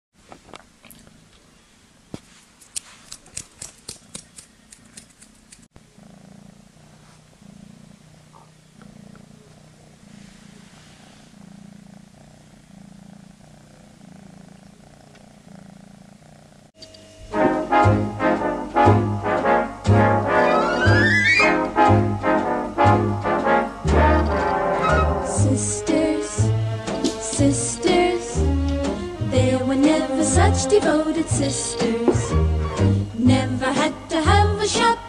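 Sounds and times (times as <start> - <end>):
kitten purring: 0.8 - 1.7, 2.6 - 16.8, 23.3 - 35.0
sharp clicks and taps: 2.7 - 5.7.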